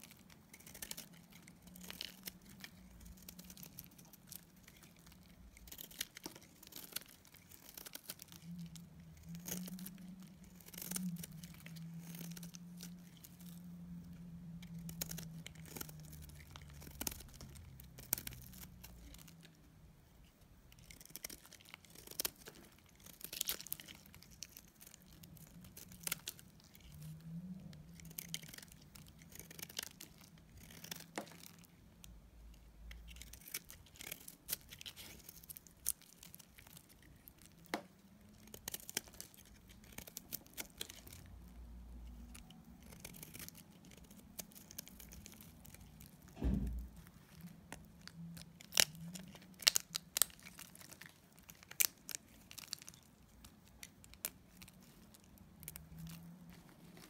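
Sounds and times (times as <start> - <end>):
blade shaving soap: 0.0 - 19.6, 20.7 - 46.4.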